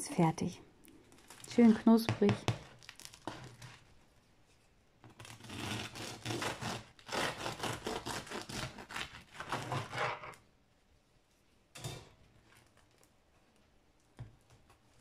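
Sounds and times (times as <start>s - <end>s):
bread knife sawing through crusty loaf: 5.4s - 10.4s.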